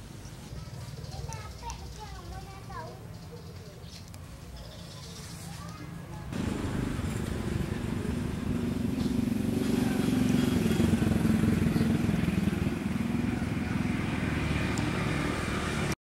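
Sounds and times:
engine running steadily: 6.3s - 16.0s.

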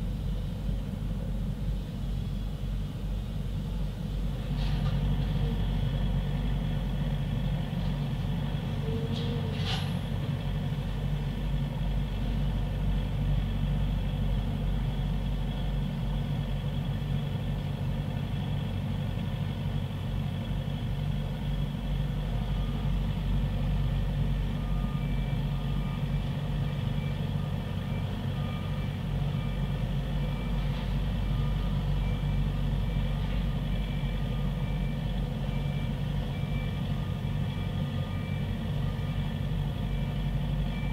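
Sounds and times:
diesel engine humming: 0.0s - 40.9s
reversing alarm beeps: 22.5s - 23.0s, 24.4s - 40.9s.

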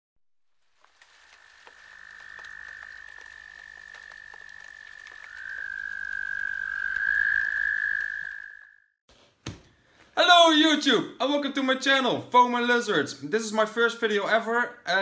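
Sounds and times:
frogs trilling: 0.8s - 8.8s.

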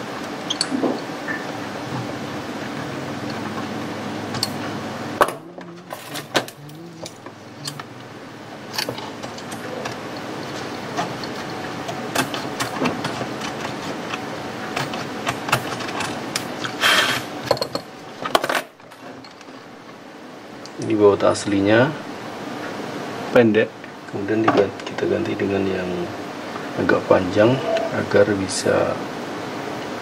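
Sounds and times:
steady hum: 0.0s - 30.0s
screwdriver and metal parts clicking: 5.8s - 7.9s.

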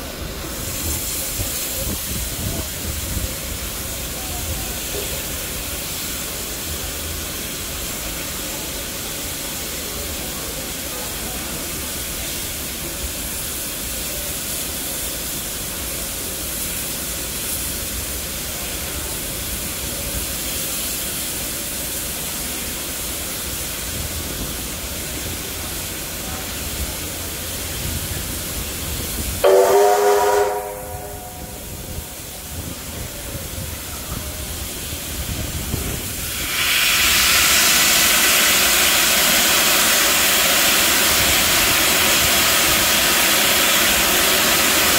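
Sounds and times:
loud steam venting: 0.0s - 44.9s
steady hiss of steam: 0.0s - 44.9s
steam whistle blast: 29.4s - 31.8s.

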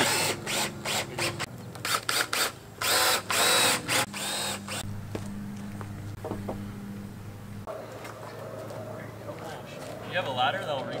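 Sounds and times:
cordless drill driving screws: 0.0s - 4.8s.

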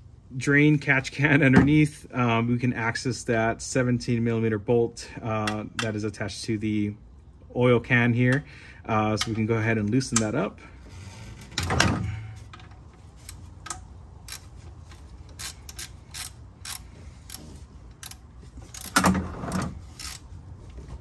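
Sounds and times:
ratchet clicks: 13.2s - 20.2s.

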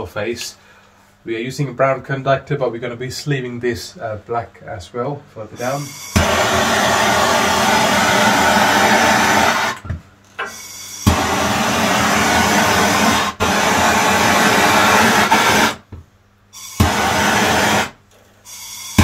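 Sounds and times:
heat gun blowing: 5.6s - 9.8s, 10.4s - 15.8s, 16.6s - 19.0s.

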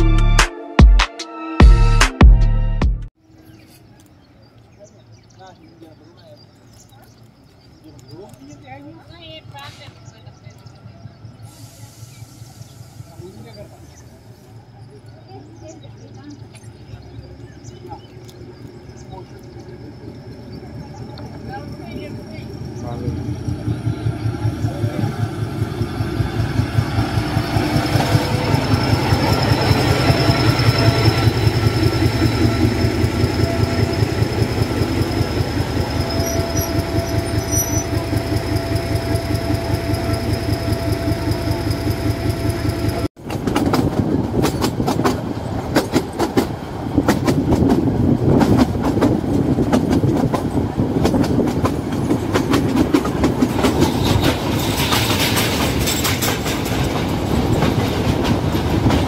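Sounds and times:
diesel locomotive engine throbbing: 7.6s - 59.0s
train wheels clattering over rail joints: 22.8s - 59.0s.

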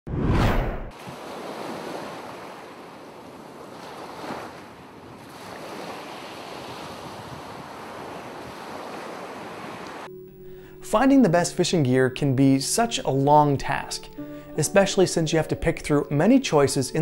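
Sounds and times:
ocean waves washing: 0.4s - 10.1s.

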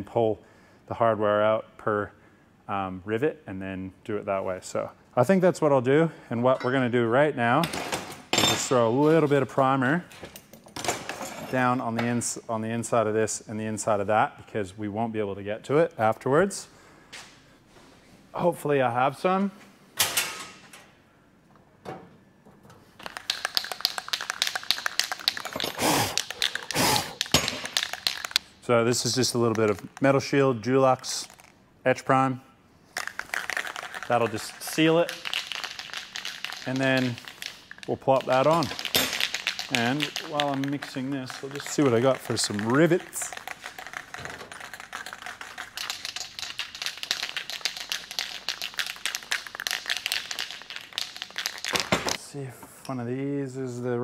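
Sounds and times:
spray can hissing: 23.0s - 28.4s
spray can ball rattling: 23.0s - 30.3s, 30.9s - 31.6s, 32.9s - 52.2s.

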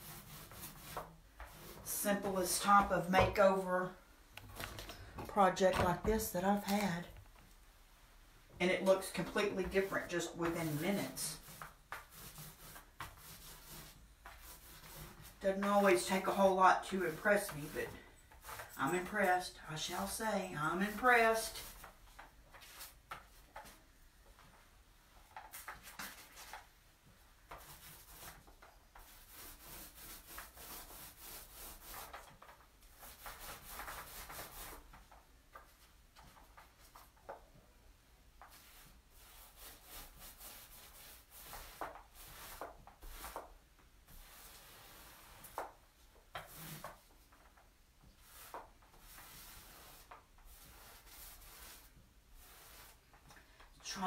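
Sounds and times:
paint roller rubbing: 0.0s - 3.7s, 8.8s - 23.8s, 27.5s - 35.1s, 38.4s - 53.2s.

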